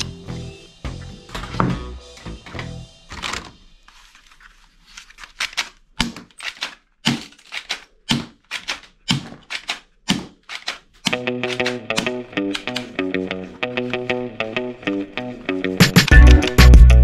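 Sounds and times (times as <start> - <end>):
plastic toy guns clacking in a box: 5.3 - 13.0.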